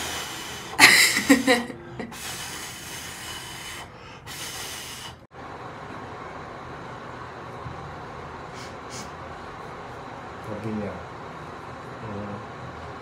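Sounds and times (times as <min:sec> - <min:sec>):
steady airy hiss: 0:00.0 - 0:05.3.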